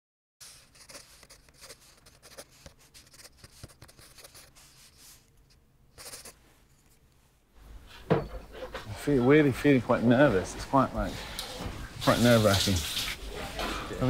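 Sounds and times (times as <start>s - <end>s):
pencil scratching on paper: 0.4s - 5.3s, 6.0s - 6.4s.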